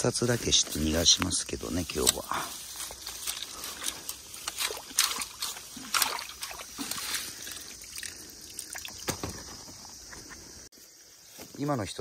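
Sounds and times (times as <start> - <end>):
water sloshing and trickling: 2.5 - 10.2
sharp water splashes: 4.2 - 9.1.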